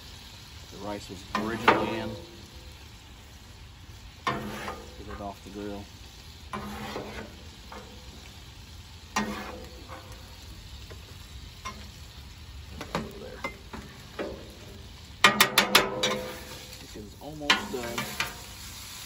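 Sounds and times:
food sizzling on griddle: 0.0s - 19.0s
metal spatula scraping griddle: 1.2s - 2.8s, 4.2s - 8.4s, 9.0s - 12.0s, 12.8s - 18.8s.

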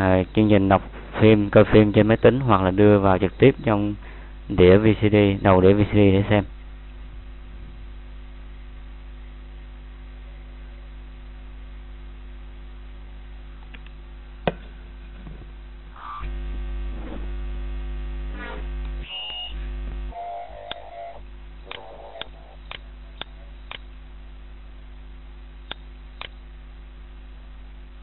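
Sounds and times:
electrical mains hum: 0.0s - 28.0s
sharp click: 21.7s - 23.9s, 25.7s - 26.4s.

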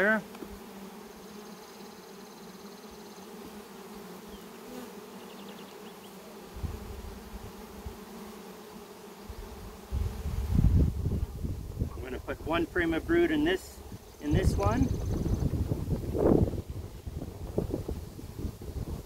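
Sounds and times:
honey bees buzzing: 0.0s - 19.0s.

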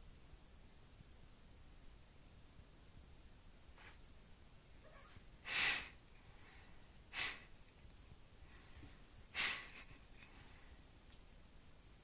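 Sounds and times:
cat hissing: 4.8s - 6.0s.

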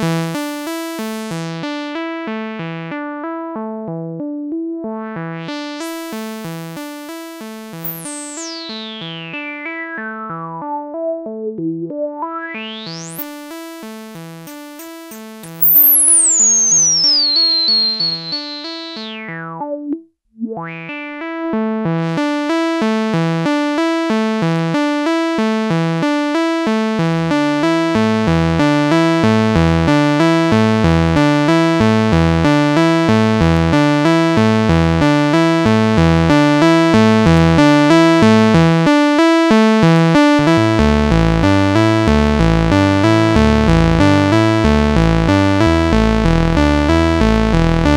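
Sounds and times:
analog synthesizer sequenced pattern: 5.2s - 23.6s, 40.0s - 47.9s
high synth tone gliding down: 7.8s - 9.4s, 14.5s - 19.3s
deep synth bass notes: 40.0s - 47.9s.

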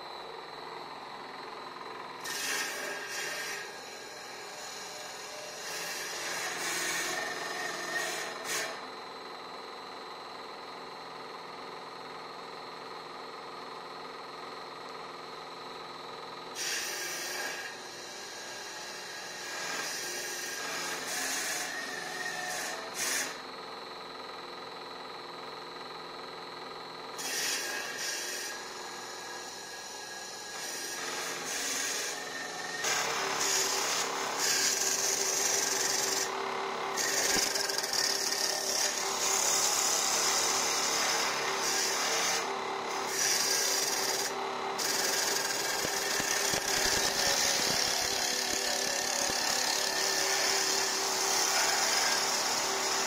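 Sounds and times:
machine high whine: 0.0s - 13.0s, 15.4s - 53.0s
lathe cutter rasping wood: 2.2s - 4.0s, 30.5s - 36.3s, 37.0s - 42.5s, 43.1s - 53.0s.

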